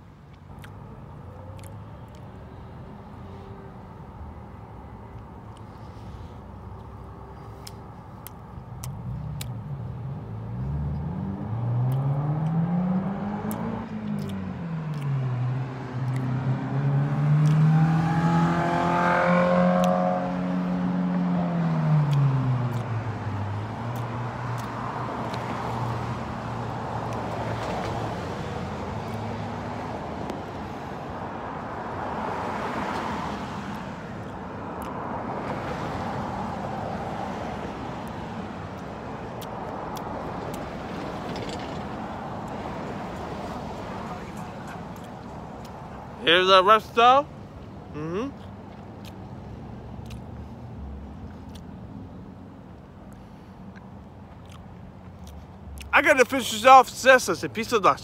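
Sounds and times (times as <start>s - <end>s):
road traffic driving past: 0.0s - 58.0s
vehicle engine passing by: 9.0s - 34.3s.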